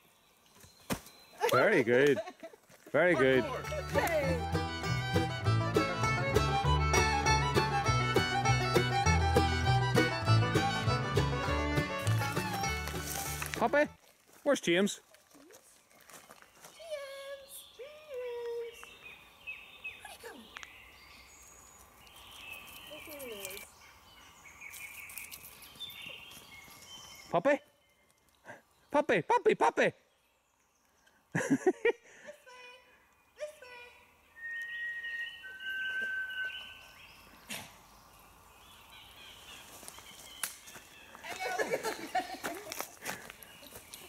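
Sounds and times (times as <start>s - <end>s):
birds chirping and trilling: 15.8s - 31.3s, 32.8s - 44.0s.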